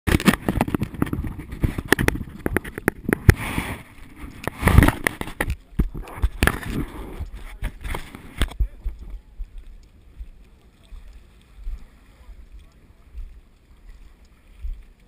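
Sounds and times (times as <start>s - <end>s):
knocks and scrapes against camera: 0.1s - 9.2s
wind gusts on microphone: 0.1s - 9.4s.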